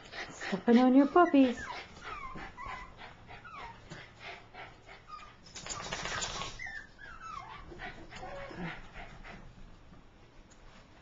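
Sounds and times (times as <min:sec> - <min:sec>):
dog whining: 0:01.1 - 0:03.8, 0:05.1 - 0:08.8.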